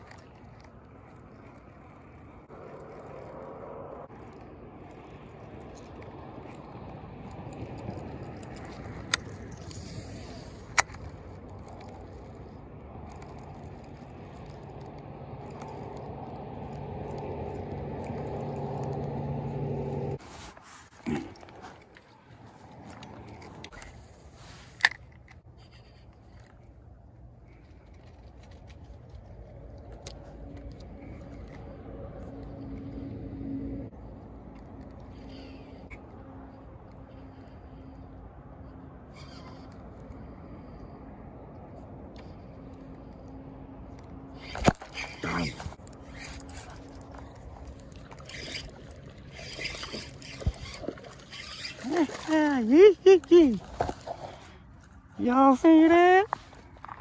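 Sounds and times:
rod and reel clicks: 0:00.0 - 0:19.3, 0:21.4 - 0:26.6, 0:44.0 - 0:52.9
low outdoor rumble: 0:00.0 - 0:57.0.

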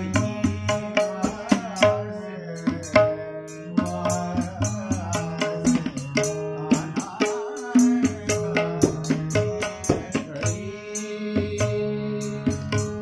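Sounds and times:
harmonium melody: 0:00.0 - 0:13.0
hand-drum strokes: 0:03.8 - 0:13.0.

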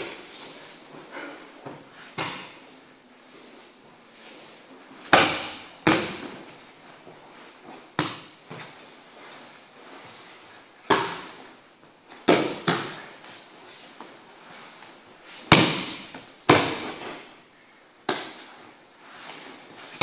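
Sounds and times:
bodies slapping onto mats: 0:00.0 - 0:02.7, 0:05.0 - 0:09.3, 0:10.8 - 0:13.4, 0:15.3 - 0:17.3.

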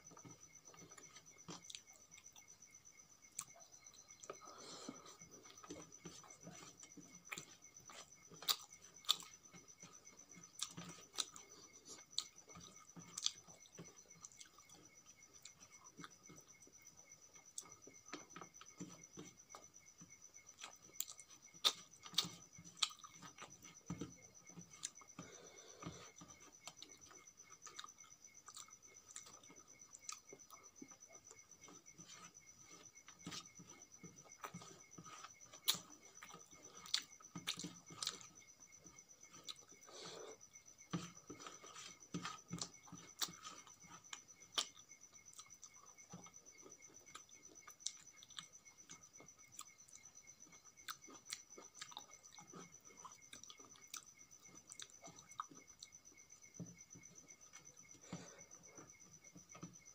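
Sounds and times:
mouth chewing with wet smacks: 0:03.3 - 0:59.8.

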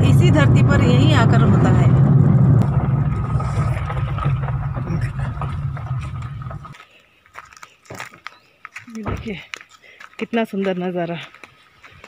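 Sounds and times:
car engine drone inside cabin: 0:00.0 - 0:06.8.

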